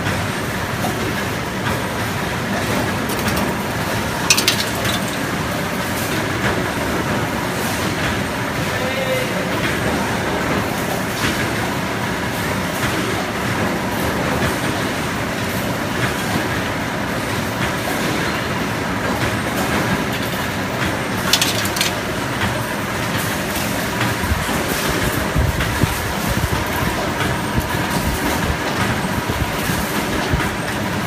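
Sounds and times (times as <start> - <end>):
wire bending machine clattering: 2.5 - 6.4, 19.2 - 30.4.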